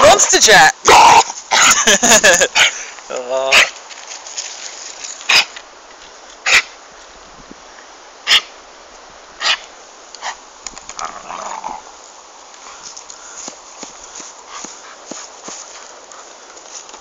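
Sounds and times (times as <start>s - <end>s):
dog barking: 3.5s - 3.7s, 6.5s - 6.7s, 8.3s - 8.5s.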